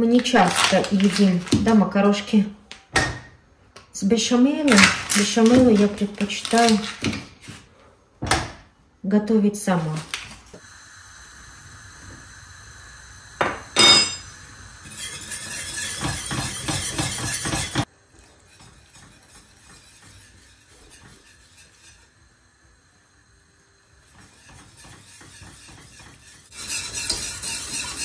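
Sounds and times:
metal kitchenware clinking: 13.8 - 14.3
stirring and scraping in pot: 14.7 - 28.0.

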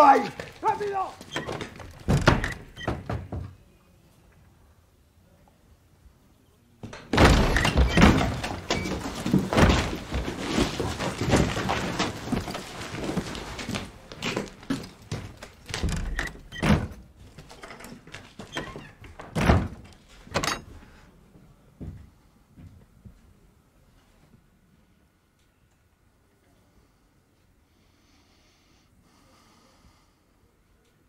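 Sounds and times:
heavy thuds: 6.8 - 16.0.

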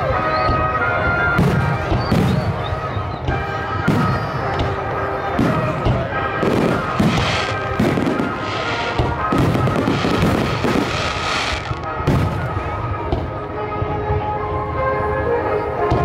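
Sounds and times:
music playing: 0.0 - 16.0
fireworks bursting: 1.4 - 13.4.

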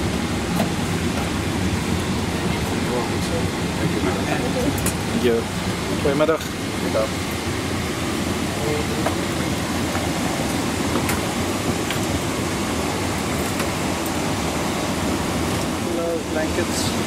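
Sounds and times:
cabin air conditioning rush: 0.0 - 17.0.

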